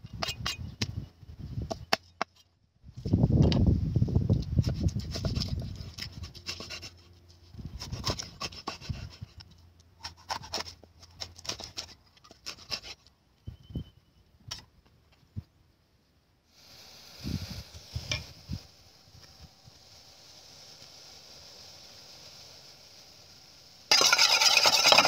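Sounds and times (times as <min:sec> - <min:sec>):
cleaver scraping fish: 0:04.6 - 0:09.4, 0:10.0 - 0:13.1.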